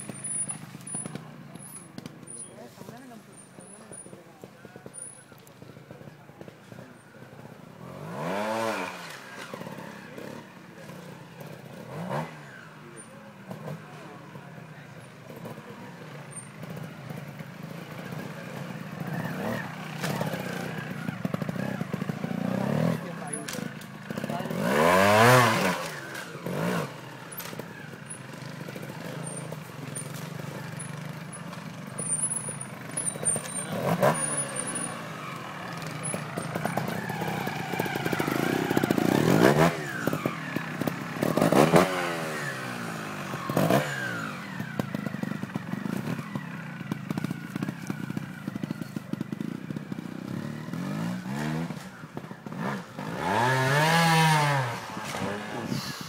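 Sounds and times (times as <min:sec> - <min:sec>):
motorcycle engine revving: 0:00.0 - 0:56.0
clatter and scraping over rocks: 0:15.2 - 0:41.8, 0:43.1 - 0:52.7.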